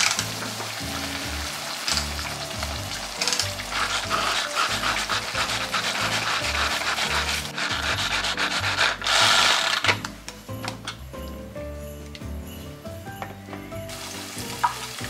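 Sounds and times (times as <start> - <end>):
blades rasping through vegetables: 2.5 - 9.8.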